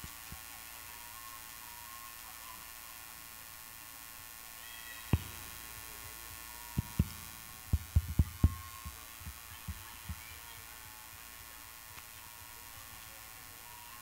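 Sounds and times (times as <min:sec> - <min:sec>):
faint steady hum: 0:00.0 - 0:14.0
dull low thumps: 0:06.8 - 0:10.2.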